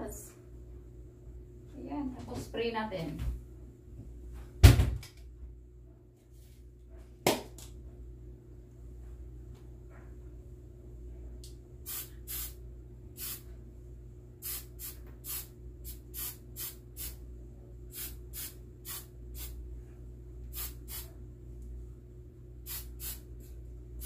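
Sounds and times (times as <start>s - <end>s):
hairspray hissing bursts: 11.9s - 12.6s, 13.2s - 13.4s, 14.4s - 17.2s, 17.9s - 19.6s, 20.5s - 21.1s, 22.6s - 23.2s.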